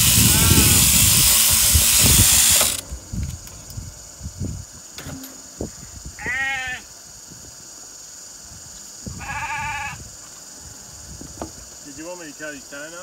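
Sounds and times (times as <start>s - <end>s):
sheep bleating: 0.2s - 0.8s.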